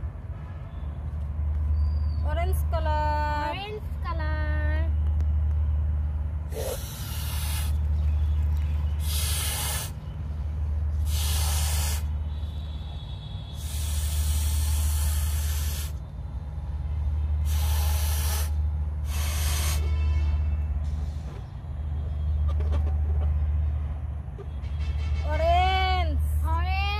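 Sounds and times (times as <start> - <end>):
breaths blowing up balloon: 6.5 - 7.8, 9.0 - 10.0, 11.0 - 12.1, 13.6 - 16.0, 17.4 - 19.8.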